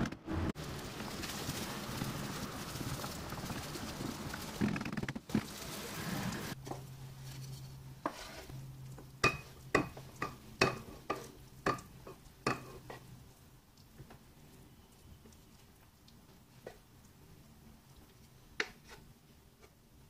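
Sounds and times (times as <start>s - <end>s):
rice sizzling in frying pan: 0.6s - 14.3s
wooden spoon stirring: 6.6s - 13.1s
spoon knocking ceramic bowl: 9.2s - 11.9s.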